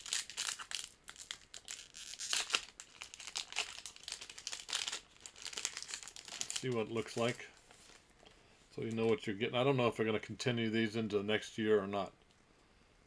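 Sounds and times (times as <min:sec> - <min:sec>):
card pack wrapper crinkling: 0:00.0 - 0:08.1.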